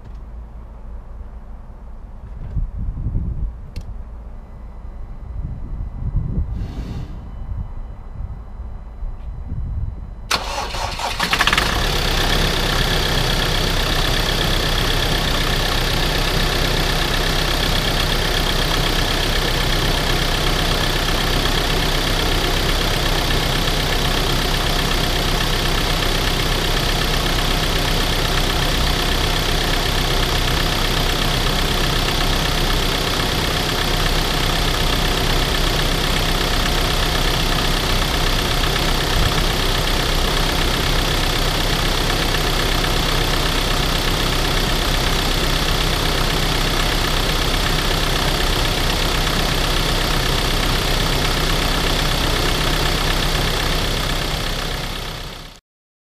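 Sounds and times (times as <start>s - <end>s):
starter motor cranking: 10.3s - 12.2s
diesel engine idling: 10.3s - 55.6s.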